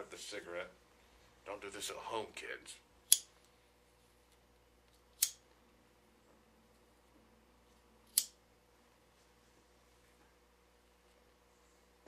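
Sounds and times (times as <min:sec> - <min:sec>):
lighter strike clicks: 0:05.2 - 0:05.4, 0:08.1 - 0:08.4.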